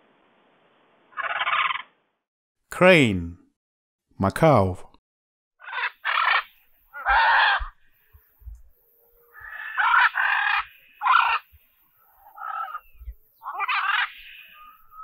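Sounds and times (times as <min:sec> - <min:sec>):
macaw squawking: 0:01.1 - 0:02.0, 0:05.6 - 0:07.8, 0:09.3 - 0:15.0.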